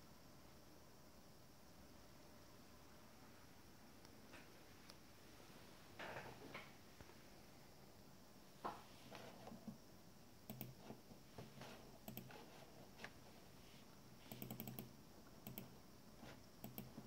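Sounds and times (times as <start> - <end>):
computer mouse clicks: 10.4 - 12.6, 14.2 - 17.0
computer keyboard clicks: 10.5 - 10.8, 12.0 - 12.4, 14.3 - 15.8, 16.6 - 17.0.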